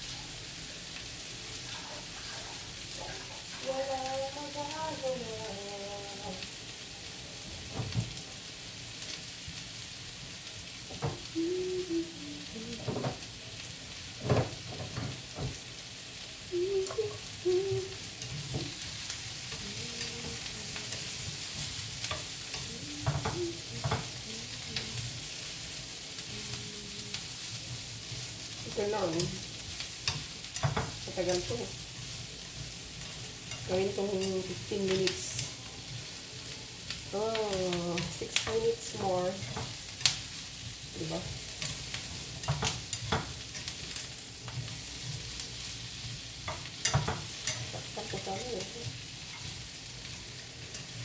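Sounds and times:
food sizzling in frying pan: 0:00.0 - 0:51.0
wooden spatula stirring food: 0:14.1 - 0:51.0.

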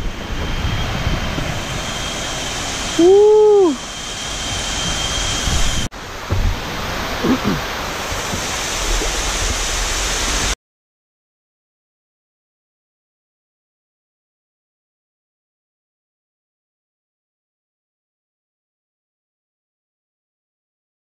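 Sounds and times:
waterfall rushing: 0:01.6 - 0:10.6
person shouting woo: 0:03.0 - 0:03.8.

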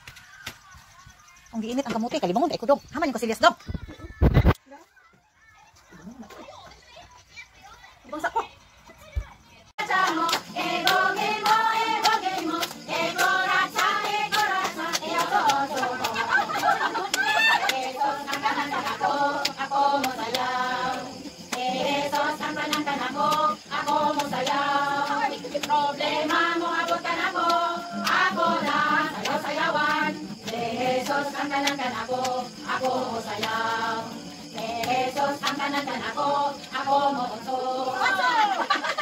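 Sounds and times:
people clapping: 0:09.8 - 0:37.3
group singing in unison: 0:09.8 - 0:39.0.

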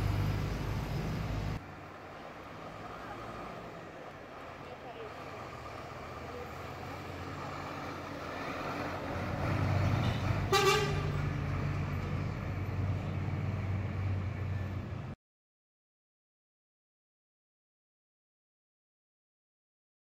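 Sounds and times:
bus engine passing: 0:00.0 - 0:15.2
horn toot: 0:10.0 - 0:11.2.

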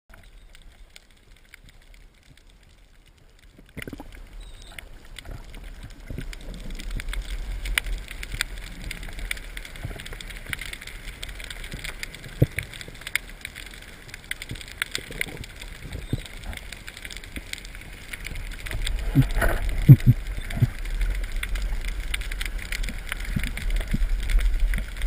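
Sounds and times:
small underwater clicks and crackles: 0:00.1 - 0:25.0
low underwater rumble: 0:15.1 - 0:25.0.

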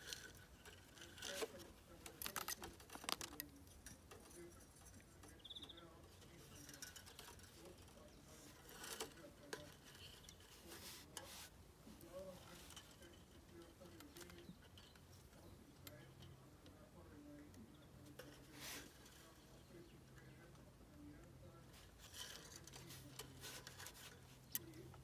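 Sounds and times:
wire scraping through wooden frame: 0:00.0 - 0:17.2, 0:17.8 - 0:25.0.

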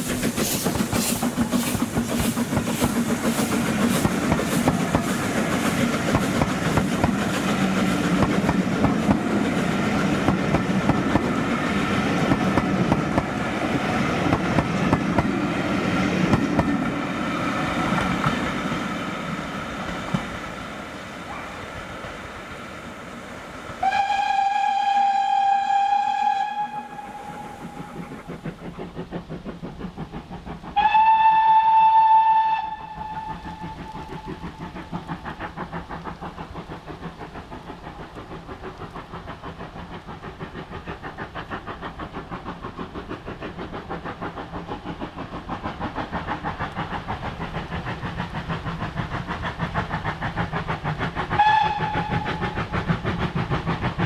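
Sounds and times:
locomotive exhaust chuffing: 0:00.0 - 0:20.5, 0:23.8 - 0:54.0
steam locomotive whistle: 0:23.8 - 0:28.1, 0:30.8 - 0:34.5, 0:51.4 - 0:52.6.

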